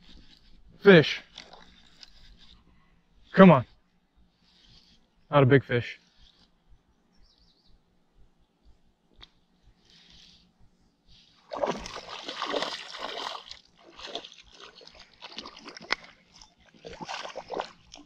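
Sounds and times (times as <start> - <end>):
fish splashing at the surface: 11.5 - 18.0.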